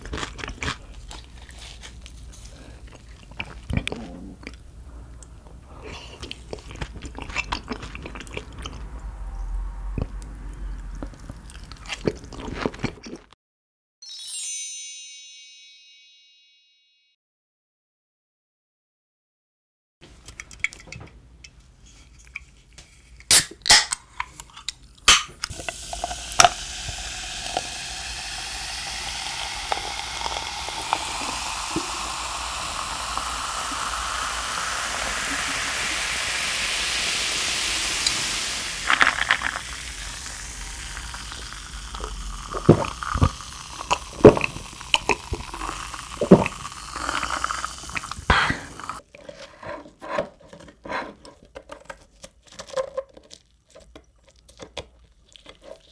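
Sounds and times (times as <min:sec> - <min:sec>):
cooking hiss: 0:25.1 - 0:49.0.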